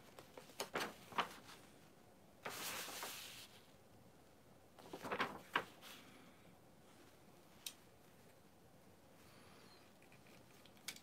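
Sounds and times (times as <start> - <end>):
paper rustling: 0.0 - 1.8, 2.4 - 3.8, 4.8 - 6.1.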